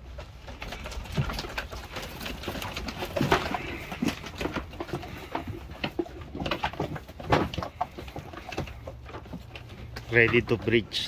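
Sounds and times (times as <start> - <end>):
goat hooves on wooden floor: 0.0 - 11.0
birds cooing: 0.6 - 10.0.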